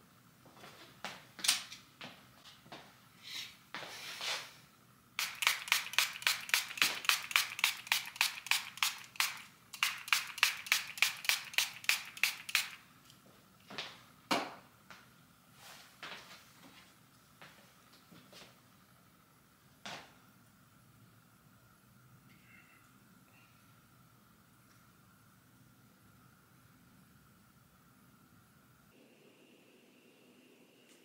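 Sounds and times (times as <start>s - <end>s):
spray bottle squirting: 5.2s - 12.8s.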